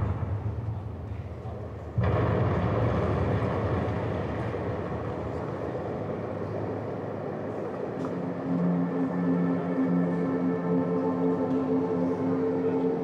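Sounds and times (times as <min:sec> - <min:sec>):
loud rushing rumble: 0:00.0 - 0:09.0.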